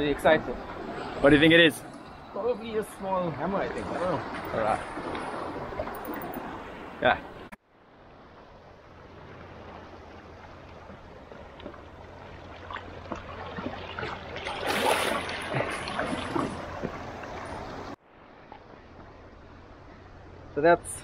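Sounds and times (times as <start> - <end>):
seawater splashing among rocks: 9.2 - 18.8.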